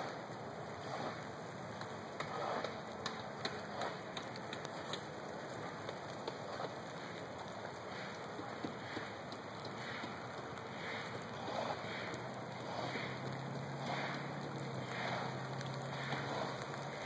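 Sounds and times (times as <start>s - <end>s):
ice and meltwater dripping ticks: 0.0s - 17.0s
steady hiss: 0.0s - 17.0s.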